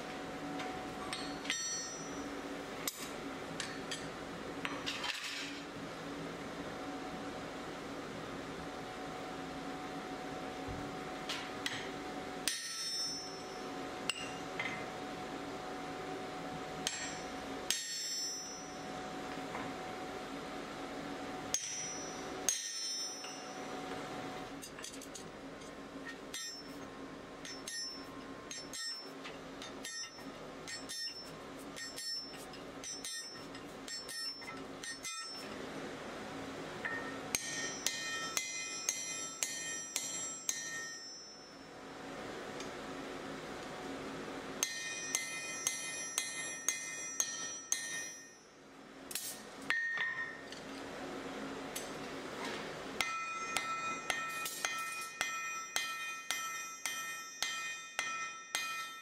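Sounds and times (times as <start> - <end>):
hammer striking punch on anvil: 1.1 - 2.2, 11.6 - 13.5, 14.1 - 14.8, 16.8 - 18.8, 21.5 - 23.6, 26.3 - 26.7, 29.8 - 31.2, 31.8 - 35.4, 36.8 - 41.5, 44.6 - 48.4, 49.1 - 50.5, 53.0 - 59.0
bell-like ringing hammer blows: 1.1 - 2.3, 12.4 - 14.5, 16.8 - 19.0, 21.5 - 23.8, 27.4 - 29.1, 36.9 - 41.8, 44.6 - 48.5, 53.0 - 59.0.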